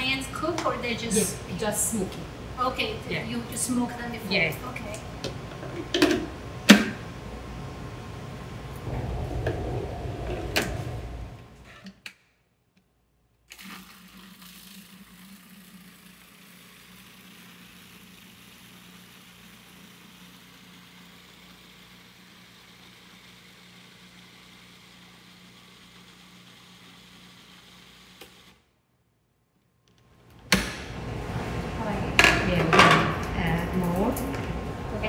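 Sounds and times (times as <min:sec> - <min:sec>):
faint low hum: 0:07.2 - 0:11.8.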